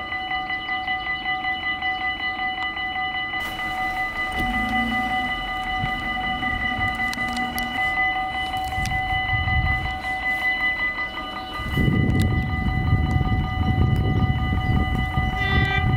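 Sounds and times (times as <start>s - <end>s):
railroad crossing bell ringing: 0.0s - 15.9s
low rumble: 3.5s - 10.4s.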